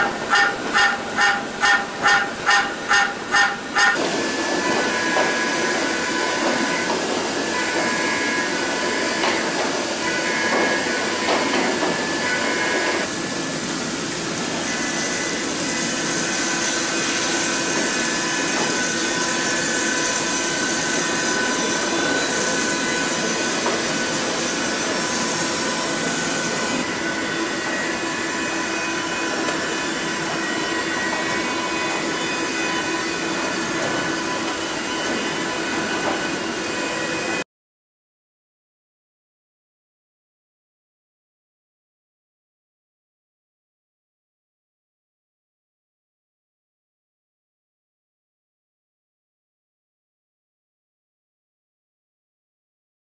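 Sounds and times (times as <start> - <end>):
milling machine whine: 0.0 - 37.4.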